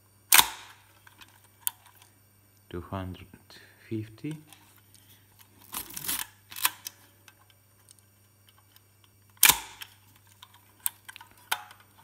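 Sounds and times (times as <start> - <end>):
camera mechanical clicks: 9.4 - 10.0.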